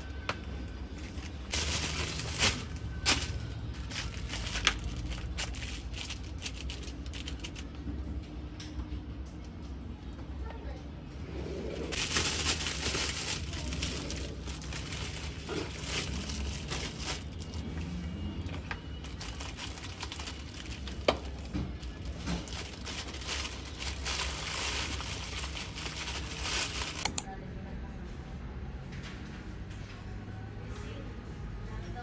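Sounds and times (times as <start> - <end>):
plastic bags crinkling: 0.0 - 8.1, 11.9 - 27.3.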